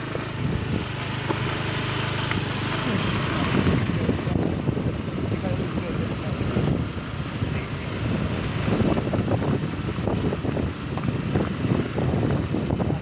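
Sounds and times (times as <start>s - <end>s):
vehicle road noise: 0.0s - 13.0s
wind buffeting microphone: 0.0s - 13.0s.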